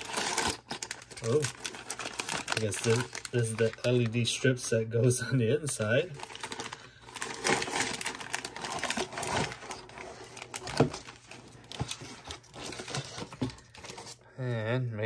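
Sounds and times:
packaging bags crinkling: 0:00.0 - 0:04.8, 0:05.5 - 0:14.2.

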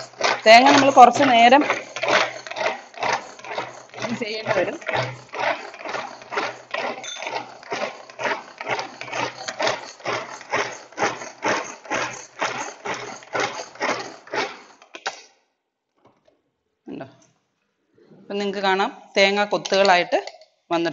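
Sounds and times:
pull-cord chopper clattering: 0:00.0 - 0:14.9.

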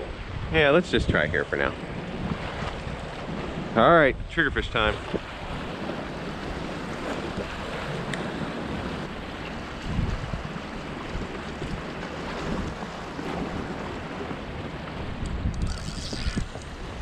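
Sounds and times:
wind buffeting microphone: 0:00.0 - 0:17.0
waves splashing against rocks: 0:04.7 - 0:17.0.

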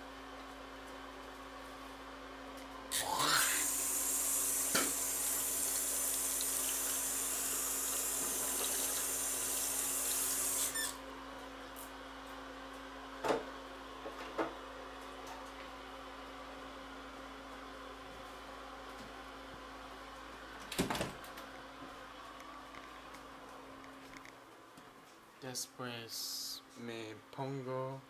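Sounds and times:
tap water running into sink: 0:04.5 - 0:10.6.

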